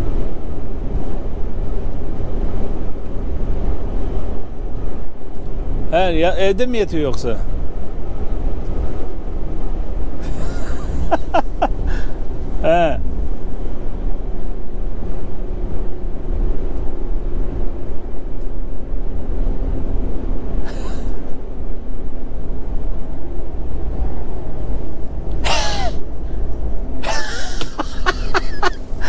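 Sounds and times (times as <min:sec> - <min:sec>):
truck engine and tyres rumbling: 0:00.0 - 0:29.0
voice on a phone call: 0:12.6 - 0:13.0.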